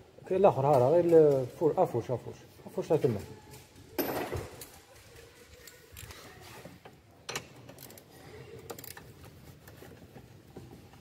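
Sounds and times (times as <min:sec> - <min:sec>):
light clicks and knocks on metal parts: 0:06.8 - 0:11.0.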